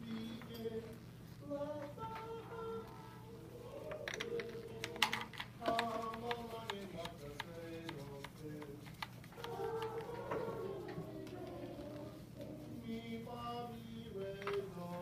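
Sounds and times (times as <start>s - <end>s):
small clicks and taps: 4.0s - 10.4s
children talking: 9.4s - 12.8s.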